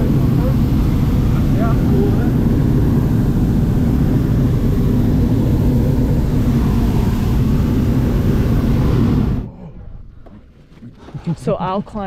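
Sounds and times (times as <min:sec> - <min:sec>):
propane burner roaring: 0:00.0 - 0:09.6.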